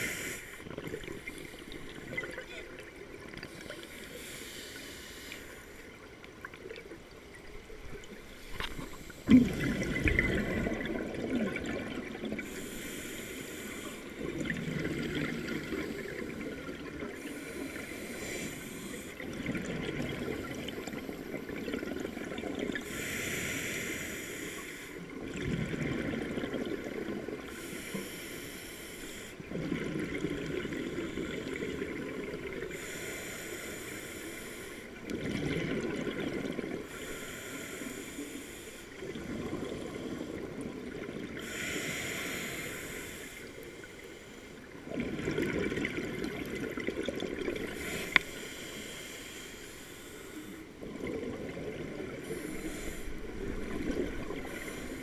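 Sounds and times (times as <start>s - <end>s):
regulator inhale hiss: 0.0s - 2.0s, 3.4s - 5.9s, 8.3s - 9.3s, 12.4s - 14.3s, 17.2s - 19.2s, 22.7s - 25.1s, 27.5s - 29.4s, 32.6s - 35.0s, 36.8s - 39.0s, 41.3s - 44.7s, 47.6s - 50.8s, 52.1s - 55.0s
exhaled bubbles underwater: 0.0s - 3.9s, 6.4s - 13.0s, 14.1s - 23.0s, 25.0s - 27.5s, 29.4s - 32.8s, 35.0s - 36.9s, 38.9s - 41.6s, 44.7s - 48.2s, 50.7s - 55.0s.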